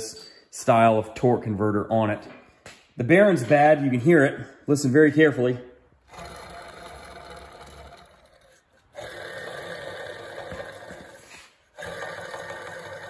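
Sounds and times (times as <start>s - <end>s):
worn bearing grinding: 6.0s - 11.2s.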